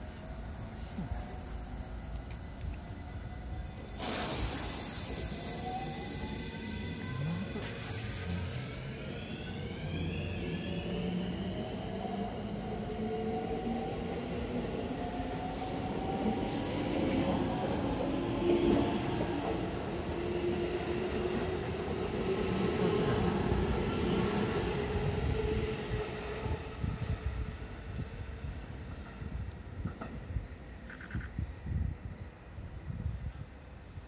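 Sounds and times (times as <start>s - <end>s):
train wheels rumbling and squealing: 0.0s - 31.3s.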